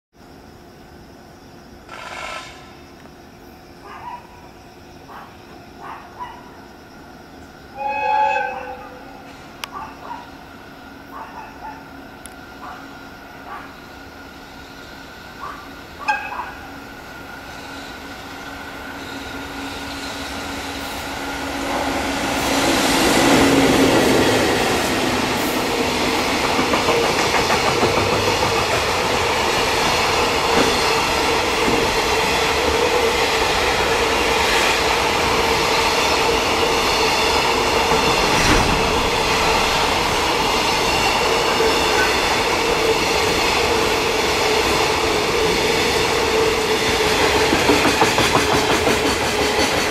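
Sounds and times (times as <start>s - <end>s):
electric locomotive passing: 0.3s - 49.9s
train wheels clacking over rail joints: 22.4s - 32.9s, 33.7s - 49.9s.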